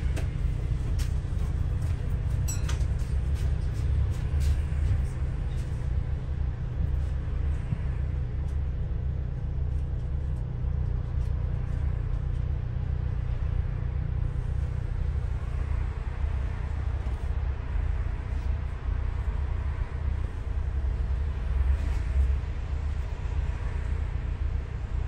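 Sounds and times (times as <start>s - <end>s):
bus engine and road rumble: 0.0s - 25.0s.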